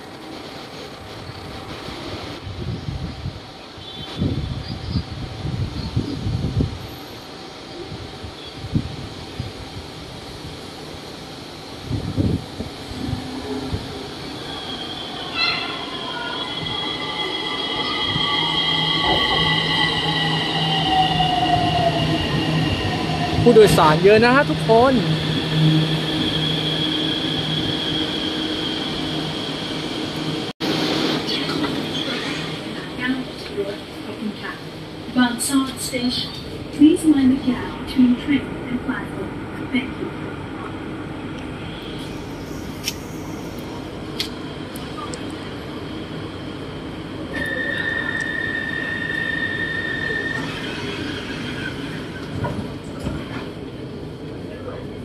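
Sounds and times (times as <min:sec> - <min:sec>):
electric train high whine: 0:00.0 - 0:40.0, 0:40.6 - 0:55.0
train rumbling: 0:00.0 - 0:55.0
high-pitched wheel squeal: 0:47.3 - 0:52.2.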